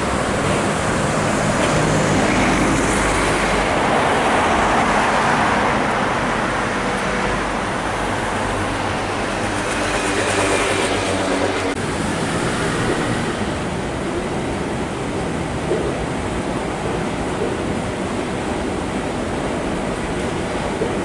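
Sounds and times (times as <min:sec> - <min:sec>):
bus passing: 0:00.0 - 0:21.0
traffic hum: 0:00.0 - 0:21.0.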